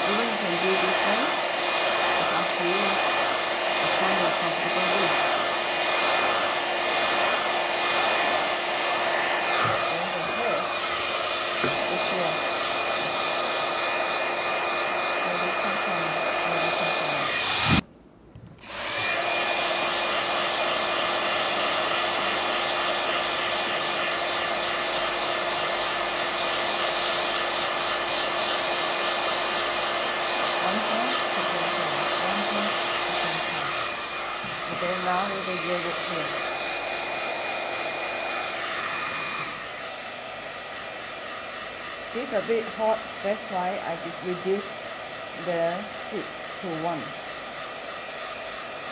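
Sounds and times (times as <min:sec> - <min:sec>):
fan whirring: 0:00.0 - 0:25.8.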